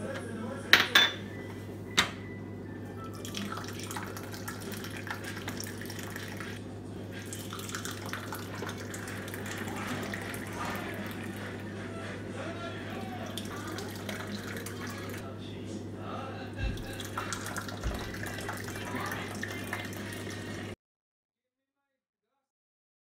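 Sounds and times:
glass clinking on metal tray: 0.7s - 1.2s
tea pouring into glass: 3.0s - 11.7s, 12.9s - 15.2s, 16.6s - 20.8s.

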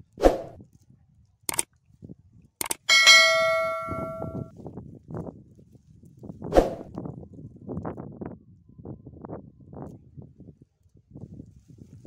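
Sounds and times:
notification bell ding: 2.9s - 4.5s.

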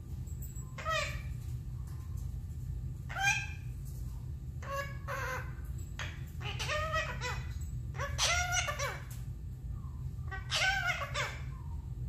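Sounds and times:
parrot chattering: 0.8s - 1.3s, 3.1s - 3.7s, 4.6s - 9.2s, 10.2s - 11.5s.

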